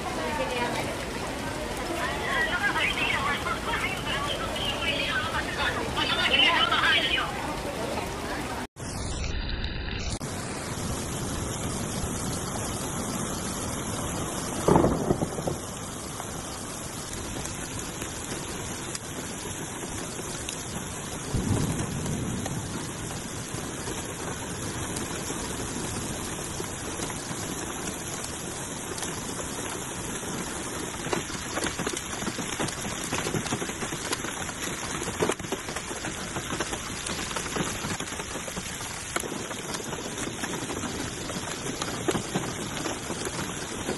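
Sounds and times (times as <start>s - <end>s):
heavy rain hissing: 0.0s - 43.9s
loud thunderclaps: 10.8s - 28.4s.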